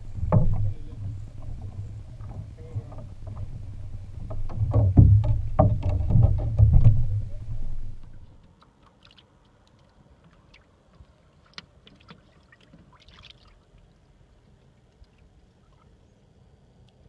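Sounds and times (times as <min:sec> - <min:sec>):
water slapping against hull: 0:00.0 - 0:13.6
water lapping at hull: 0:00.0 - 0:16.6.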